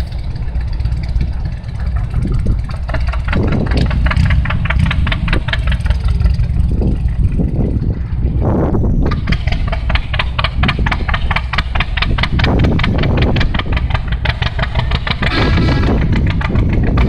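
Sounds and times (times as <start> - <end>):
engine chugging with sharp pops: 0.0 - 17.0
wind rumble on microphone: 0.0 - 17.0.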